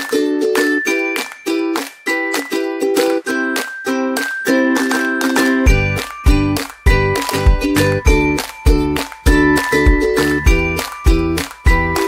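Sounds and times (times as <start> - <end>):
high held melody: 0.0 - 12.0.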